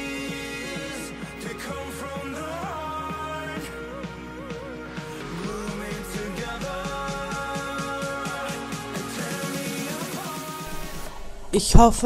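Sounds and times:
pop music with steady beat: 0.0 - 11.2.

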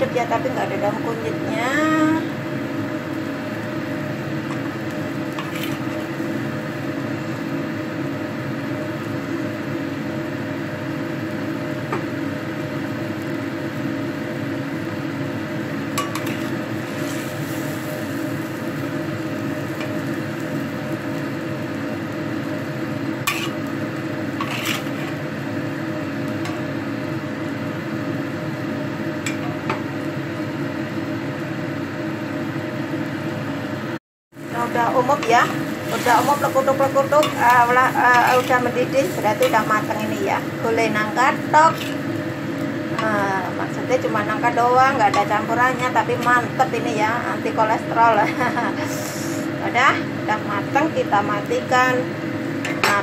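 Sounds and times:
steady hum: 0.0 - 53.0
metal spatula scraping a wok: 5.3 - 6.0, 16.1 - 18.2, 23.3 - 23.7, 24.4 - 25.2, 35.2 - 40.2, 41.7 - 42.0.

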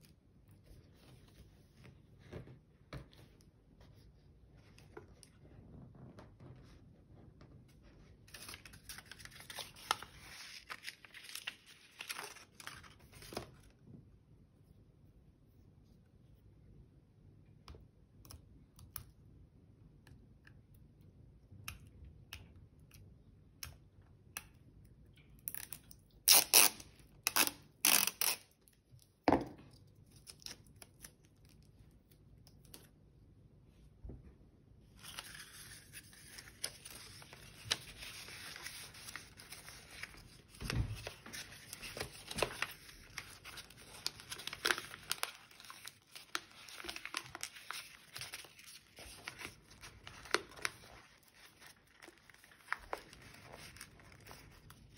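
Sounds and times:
paper rustling and crinkling: 7.8 - 13.8, 35.0 - 54.9
sticky tape ripping off roll: 26.3 - 28.5.

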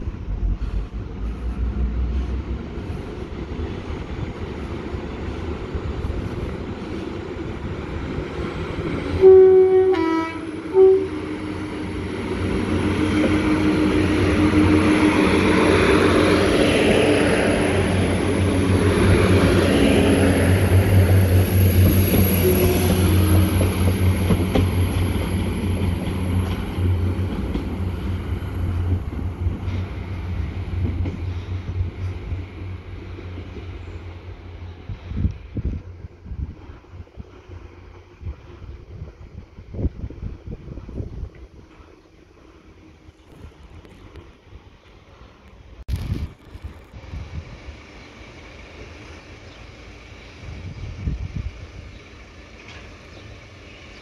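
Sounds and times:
train rumbling past: 0.0 - 54.0
train horn blasts: 9.2 - 11.8, 22.4 - 23.7.

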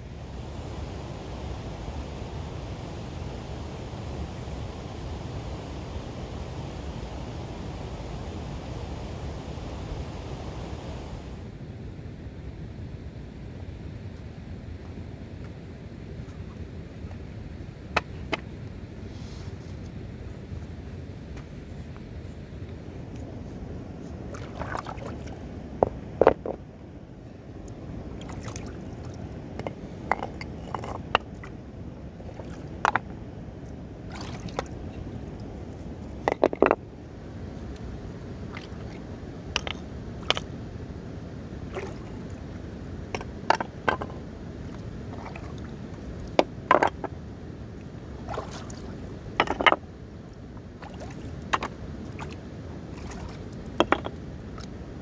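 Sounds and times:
stones clacking together: 26.2 - 26.6, 36.2 - 36.8, 49.4 - 49.8, 53.8 - 54.1
running water: 50.8 - 54.7.

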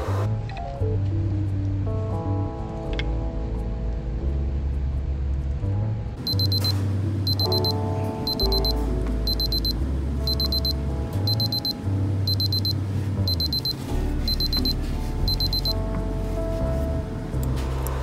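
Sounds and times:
background music: 0.1 - 18.0
digital watch alarm beeping: 6.2 - 15.8.

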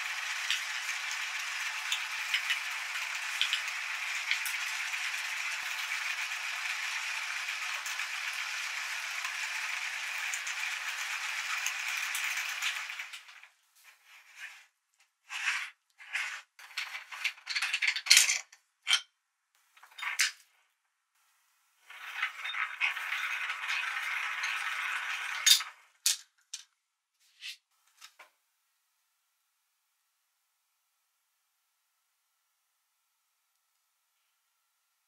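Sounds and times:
metal scraping: 13.8 - 18.1
metal grinder parts clinking: 16.0 - 19.1, 21.9 - 26.7.

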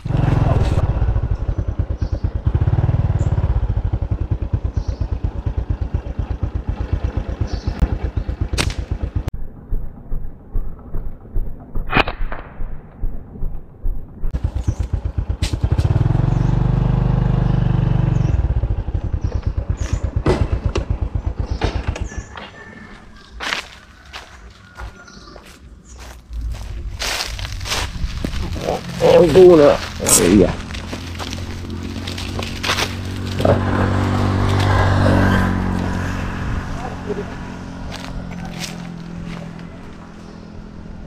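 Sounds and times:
small engine running: 0.0 - 9.3, 14.4 - 22.3, 28.6 - 41.0
clatter and sharp knocks: 20.1 - 22.1.

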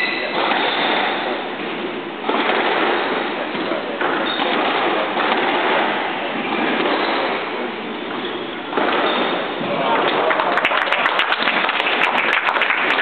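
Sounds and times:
squash ball hitting rackets and walls: 0.0 - 10.3
hall background noise: 0.0 - 13.0.

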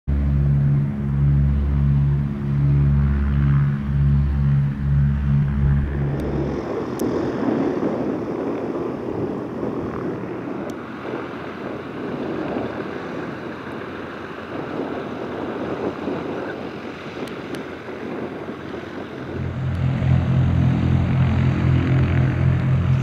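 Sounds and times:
low intro music: 0.1 - 7.0, 19.4 - 23.0
wind buffeting microphone: 0.1 - 23.0.

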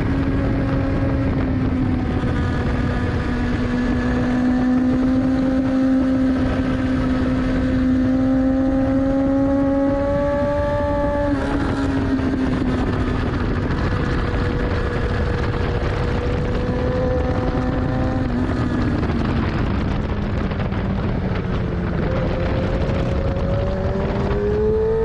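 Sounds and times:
heavy wind rush: 0.0 - 25.0
motorcycle engine pulling hard: 0.0 - 25.0.

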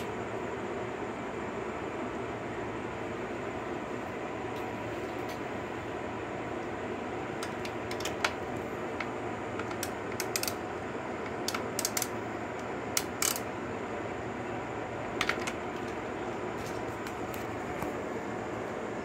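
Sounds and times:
ratchet clicking: 9.6 - 10.6, 11.4 - 12.2, 12.9 - 13.5.

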